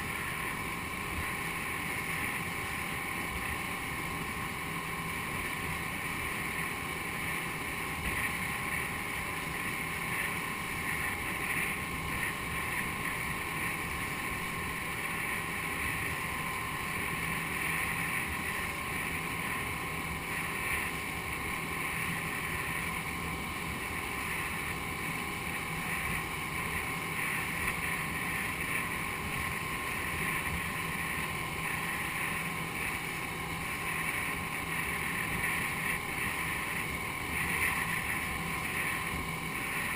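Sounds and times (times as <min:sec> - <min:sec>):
boat motor humming: 0:00.0 - 0:39.9.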